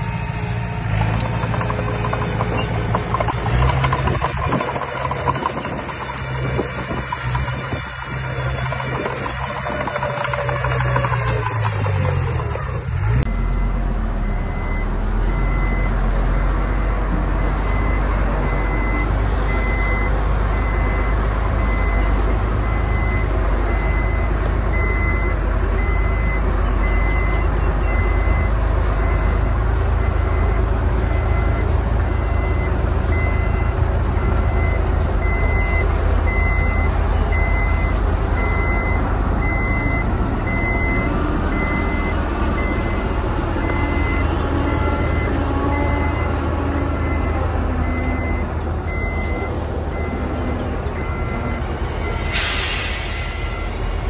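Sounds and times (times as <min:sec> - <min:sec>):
diesel engine rumble: 0:00.0 - 0:54.0
reversing alarm beeps: 0:13.3 - 0:46.4, 0:47.0 - 0:50.3, 0:51.0 - 0:53.9.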